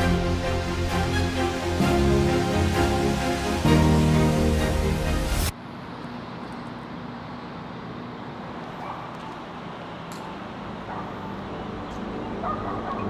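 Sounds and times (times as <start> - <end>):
music: 0.0 - 5.5, 11.0 - 13.0
steady low background noise: 0.0 - 13.0.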